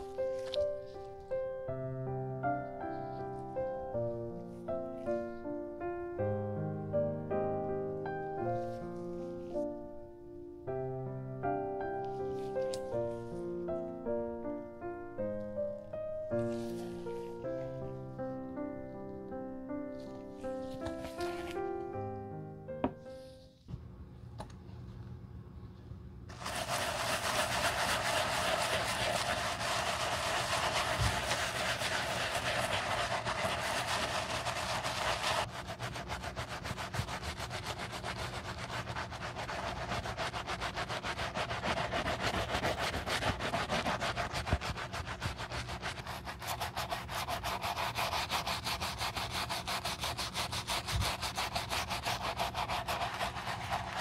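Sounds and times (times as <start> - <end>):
brush scrubbing leather: 26.3 - 54.0.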